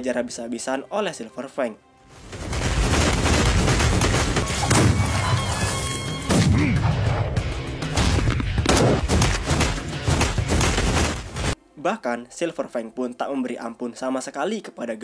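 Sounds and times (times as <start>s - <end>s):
background music: 0.0s - 15.0s
punch impacts: 2.2s - 5.3s, 7.9s - 11.6s.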